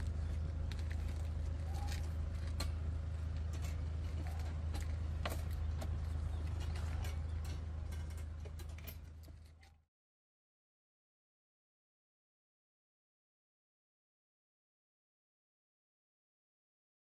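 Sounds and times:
metallic clicks and rattles: 0.8s - 9.8s.

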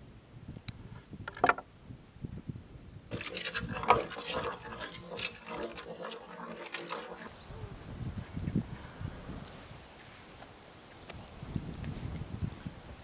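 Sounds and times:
wooden spoon stirring batter in pot: 3.1s - 7.4s.

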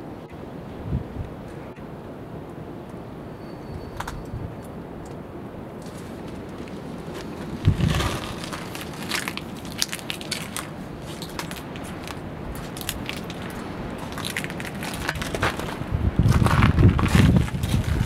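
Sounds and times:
footsteps crunching on grit: 5.8s - 18.0s.

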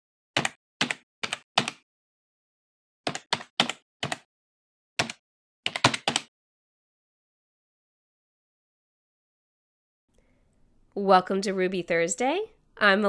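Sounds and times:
keyboard keystrokes: 3.1s - 4.3s, 5.0s - 6.3s.

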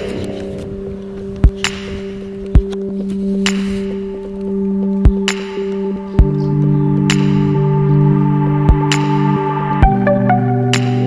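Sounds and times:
ambient music drone: 0.0s - 11.0s
sharp low thumps: 7.0s - 11.0s.

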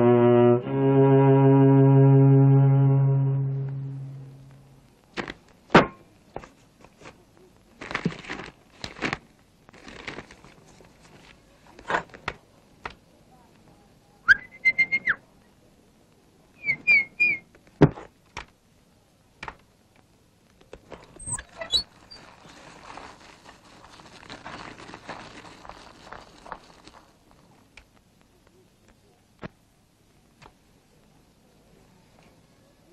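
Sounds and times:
whistled chirps: 14.3s - 15.2s, 16.6s - 17.5s
soft hiss: 17.4s - 32.9s.

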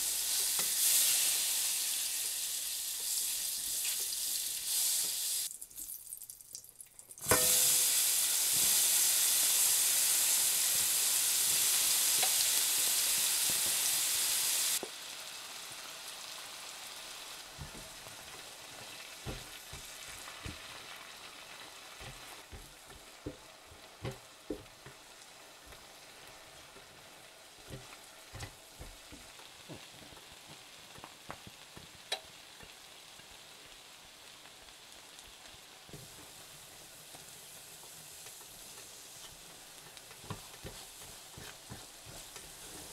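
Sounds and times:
vegetables sizzling in a pan: 0.0s - 6.0s, 7.2s - 42.9s
spatula knocking against pan: 22.0s - 25.0s.

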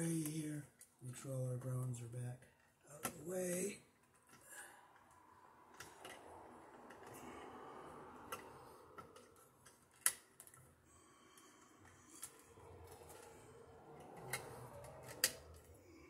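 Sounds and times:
wires rustling and clicking: 8.2s - 16.0s.

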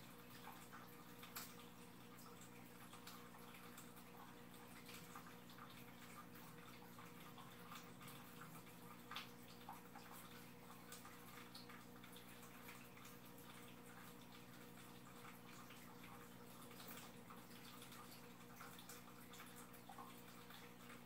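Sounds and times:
aquarium filter hum: 0.0s - 21.0s
water trickling and dripping: 0.0s - 21.0s.

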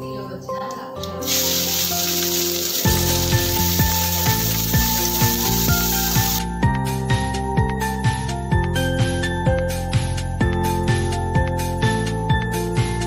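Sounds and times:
background music with beat: 1.1s - 13.0s
onions sizzling in hot oil: 1.2s - 6.4s.

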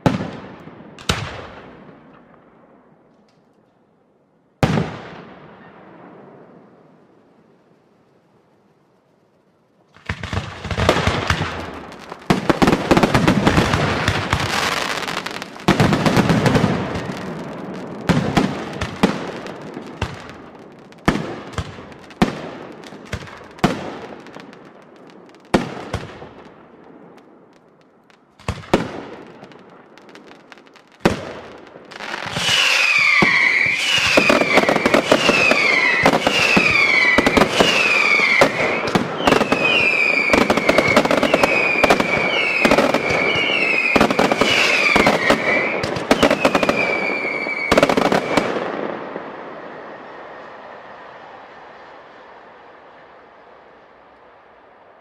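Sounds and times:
firework bangs: 4.6s - 7.0s, 9.9s - 51.5s
firework crackling: 7.1s - 53.2s
shrill falling whistles: 32.0s - 48.4s.

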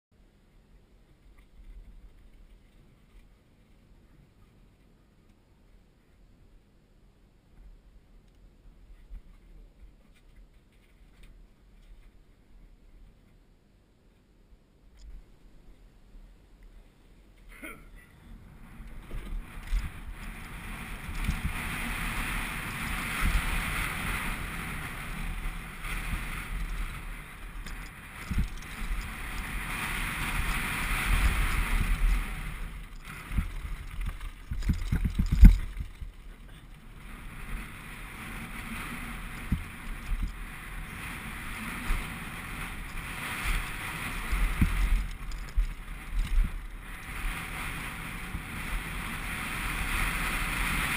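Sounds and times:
wind rushing over microphone: 18.3s - 50.9s
bike rattling and thumping: 18.8s - 50.9s
tyres crunching on gravel: 18.9s - 37.8s.

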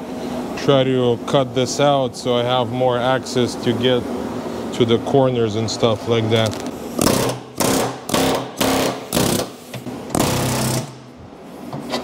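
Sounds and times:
air chisel hammering sheet metal: 7.0s - 9.6s.

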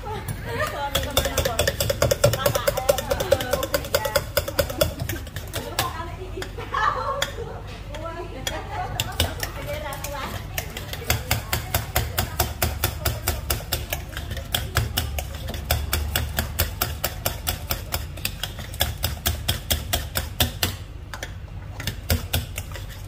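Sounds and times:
kitchen utensil knocking: 0.9s - 6.0s.

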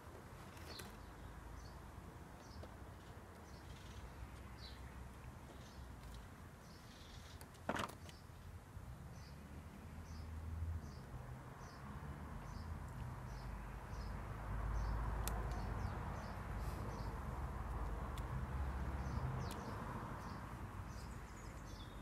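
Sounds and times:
small bird chirping: 2.4s - 8.4s, 14.8s - 22.0s.

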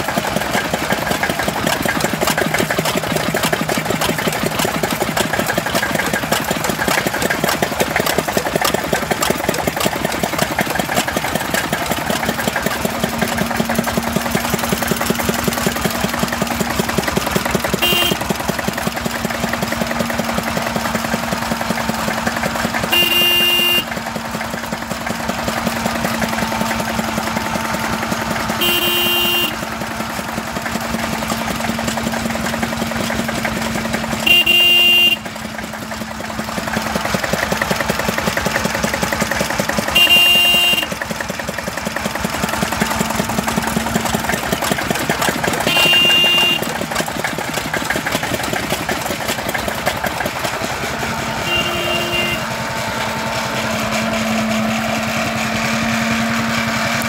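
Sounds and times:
stationary engines running: 0.0s - 57.0s
horn toots: 17.7s - 18.4s, 22.8s - 24.0s, 28.6s - 29.7s, 34.2s - 35.3s, 39.9s - 41.0s, 45.6s - 46.8s, 51.1s - 54.2s.

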